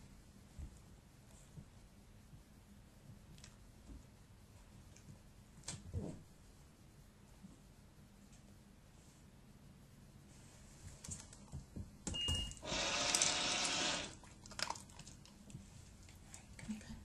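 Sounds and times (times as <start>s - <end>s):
dispenser whirring and rattling: 12.6s - 14.2s.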